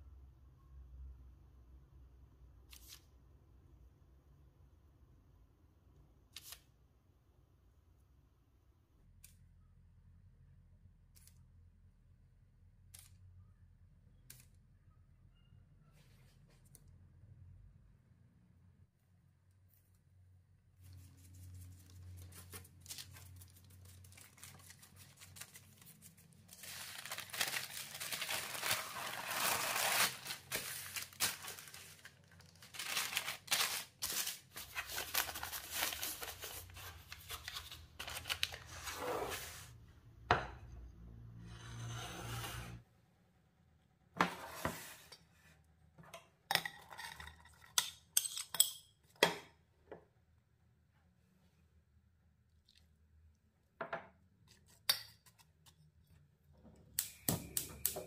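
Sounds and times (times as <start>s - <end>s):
rustling and scraping: 32.8s - 39.8s.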